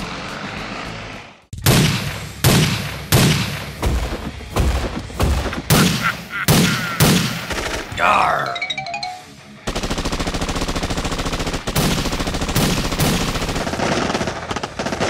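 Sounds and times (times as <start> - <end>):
cartoon gunshot bangs: 1.6 - 7.9.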